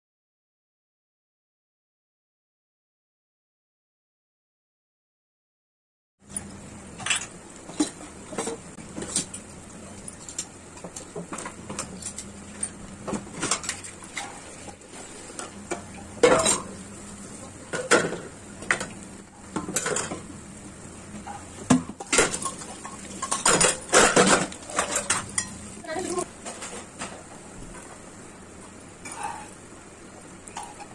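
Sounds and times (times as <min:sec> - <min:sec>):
bread sizzling in oil: 0:06.4 - 0:30.9.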